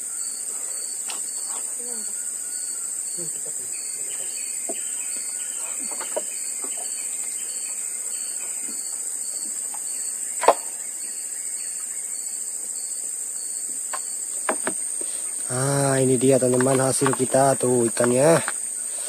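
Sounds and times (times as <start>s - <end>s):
crickets and insects chirping: 0.0s - 19.0s
faint knocks: 13.9s - 15.1s.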